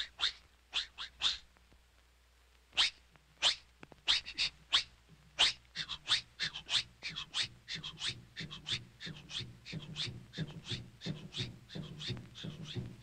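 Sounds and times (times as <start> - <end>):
cartoon moose sniffing rapidly: 2.8 - 12.8.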